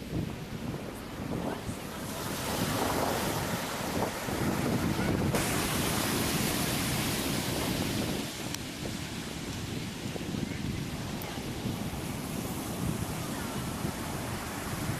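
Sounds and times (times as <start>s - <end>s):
ocean waves washing: 0.0s - 14.9s.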